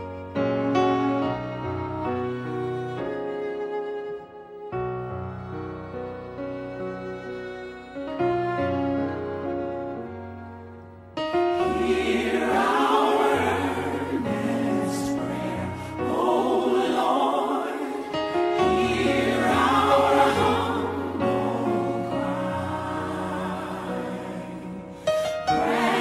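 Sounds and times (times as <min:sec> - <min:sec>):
background music: 0:00.0 - 0:26.0
choir singing gospel music: 0:11.3 - 0:26.0.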